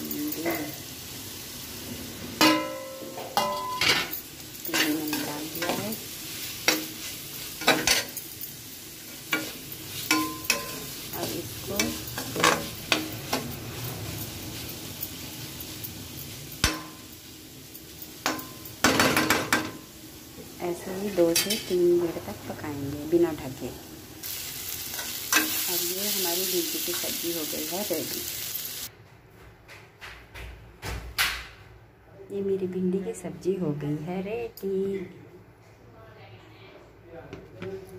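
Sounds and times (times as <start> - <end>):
light sizzle: 0.0 - 28.9.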